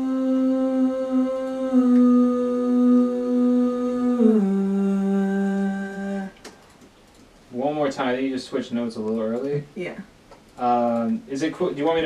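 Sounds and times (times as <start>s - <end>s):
person humming a long note: 0.0s - 6.4s.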